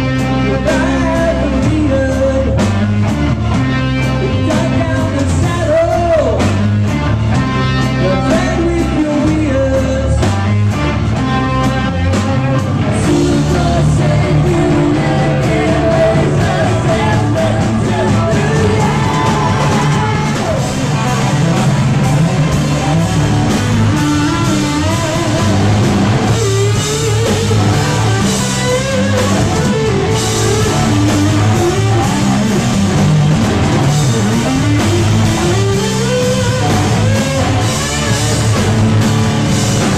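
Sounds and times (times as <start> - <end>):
drum kit steady beat: 0.0 - 39.9
guitar: 0.0 - 39.9
man singing into a microphone: 0.3 - 2.7, 4.2 - 6.5, 8.0 - 10.5, 12.4 - 21.6.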